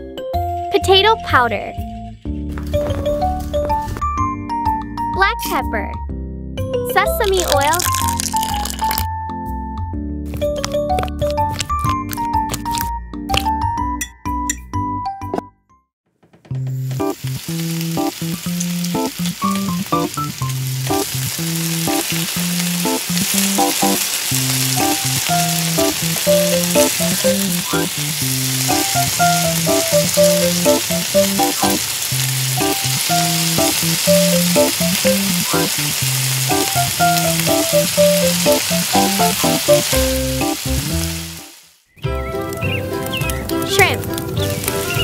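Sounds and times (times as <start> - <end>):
light melodic background tune: 0.0 - 15.6, 22.9 - 31.8, 32.5 - 41.1, 42.0 - 45.0
hot oil sizzling: 7.1 - 9.1, 16.5 - 41.8, 42.5 - 45.0.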